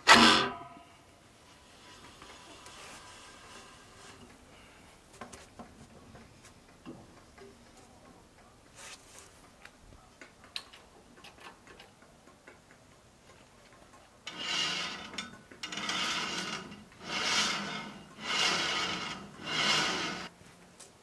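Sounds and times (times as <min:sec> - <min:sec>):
saw blade rasping strokes: 0:14.3 - 0:20.3.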